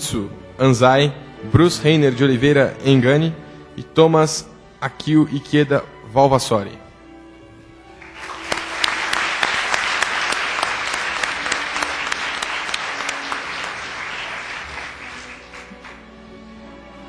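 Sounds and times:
audience applauding: 8.0 - 16.2.

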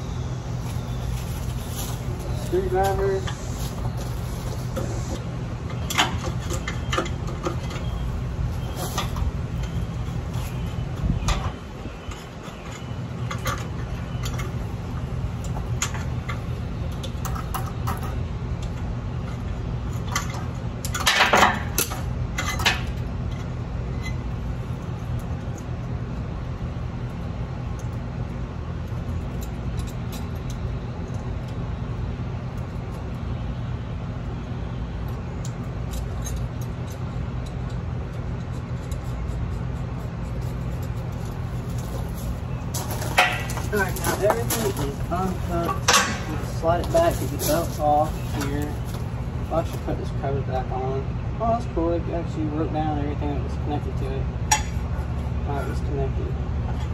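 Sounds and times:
steady low hum: 0.0 - 56.9
screwdriver and metal parts clinking: 35.4 - 49.9.

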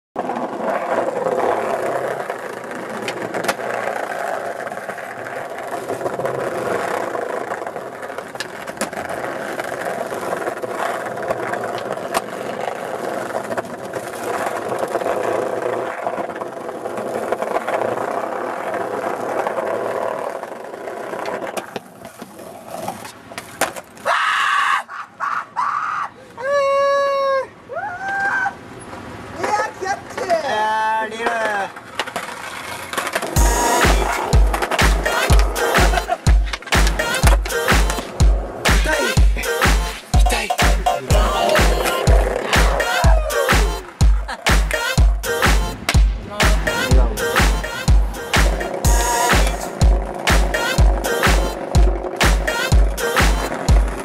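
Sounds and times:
skateboard clattering away: 0.2 - 24.0, 31.2 - 39.1
skateboard clacks: 0.2 - 24.1, 28.9 - 54.0
skateboard wheels rolling on paving: 0.2 - 24.2, 28.0 - 40.2, 40.9 - 54.0.

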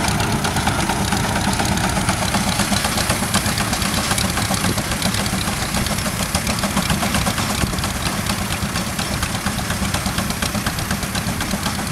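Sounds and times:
low mechanical rumble: 0.0 - 8.6
steam engine exhaust chuffing: 0.0 - 11.9.

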